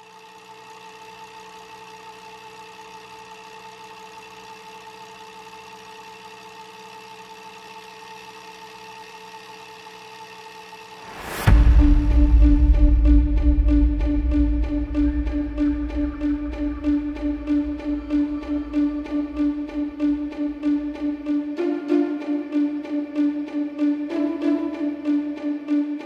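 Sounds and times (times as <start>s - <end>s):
electrical hum with high buzzing: 0.0s - 26.0s
loud music: 11.0s - 26.0s.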